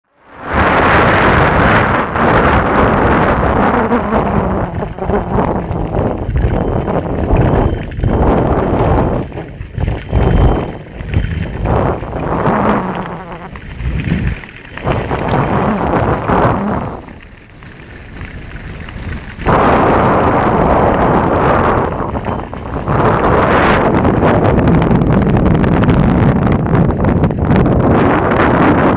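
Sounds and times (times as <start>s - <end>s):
wind buffeting microphone: 0.2s - 28.9s
wheels rattling over gravel: 0.6s - 28.9s.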